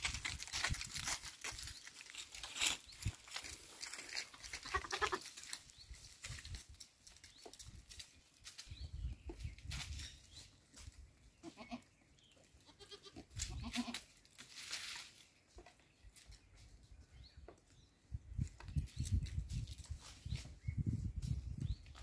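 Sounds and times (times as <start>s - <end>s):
goats bleating: 4.6s - 5.3s, 12.7s - 14.0s.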